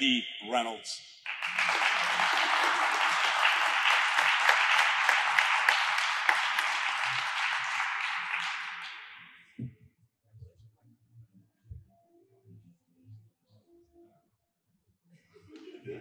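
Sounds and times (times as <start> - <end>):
audience applauding: 1.2 - 9.4.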